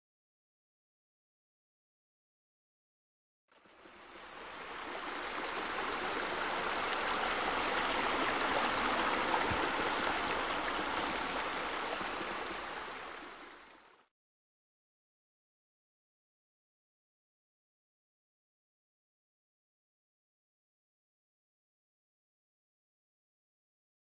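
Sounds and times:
running splashing water: 0:04.3 - 0:13.4.

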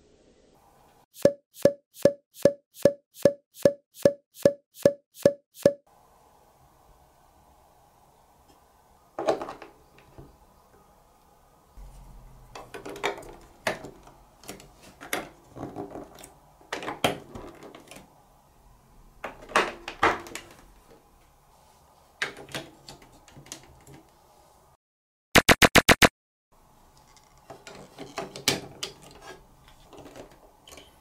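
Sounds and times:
plastic blocks clicking and knocking: 0:12.6 - 0:18.1
sharp plastic clicks: 0:25.4 - 0:26.1.

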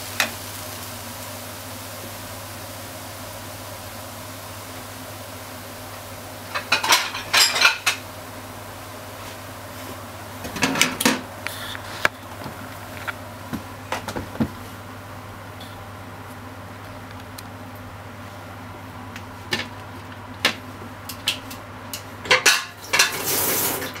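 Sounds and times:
kitchenware clattering: 0:06.5 - 0:08.0, 0:22.2 - 0:23.9.

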